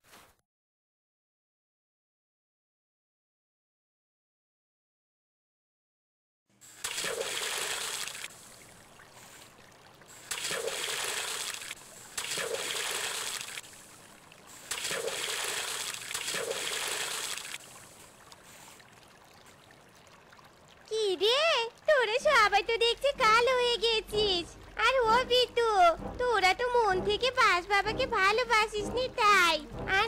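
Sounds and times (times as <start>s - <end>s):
water splashing in a pond: 6.5s - 27.4s
faint water wash: 6.6s - 30.0s.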